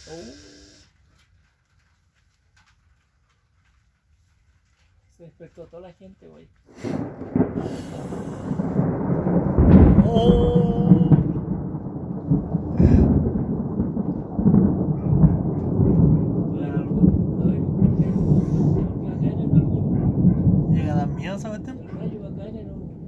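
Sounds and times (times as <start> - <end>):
thunder rumbling: 6.7 - 23.0.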